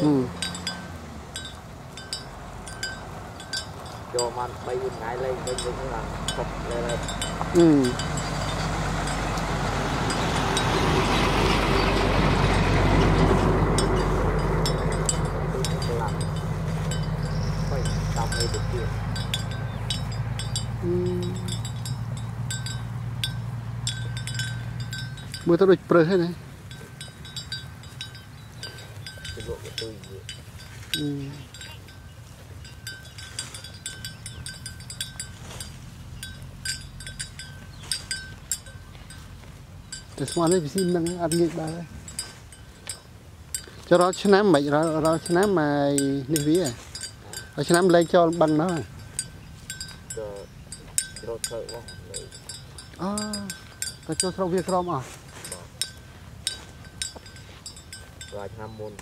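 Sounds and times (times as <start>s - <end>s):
low rumble: 0.0s - 43.1s
animal bells clinking: 0.0s - 59.0s
engine humming: 0.0s - 59.0s.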